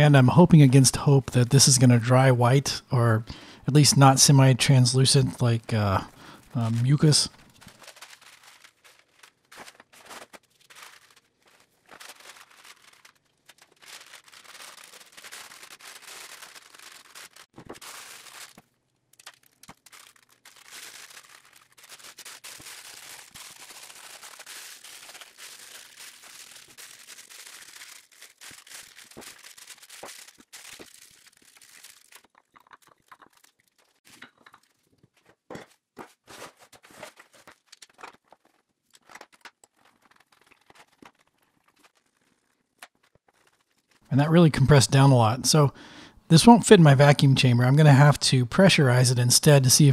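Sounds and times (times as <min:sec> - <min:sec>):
plastic and paper crinkling: 0:05.1 - 0:44.1.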